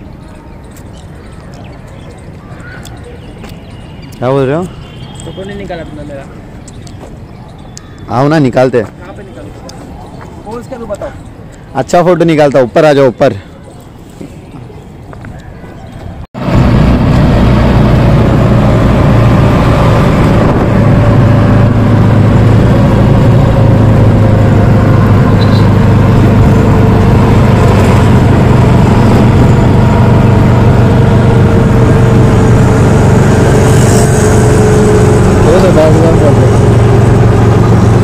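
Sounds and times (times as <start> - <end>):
motor vehicle engine running: 16.4 - 38.0.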